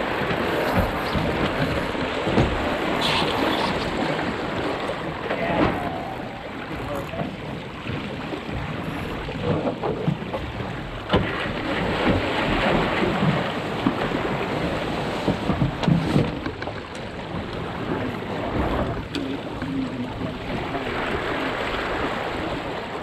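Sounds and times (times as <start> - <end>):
sail and rigging knocks and rattles: 0.0 - 23.0
water rushing along hull: 0.0 - 23.0.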